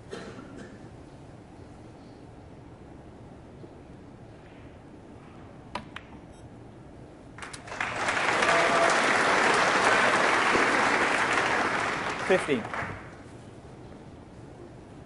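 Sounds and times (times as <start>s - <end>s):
audience applause: 7.4s - 13.2s.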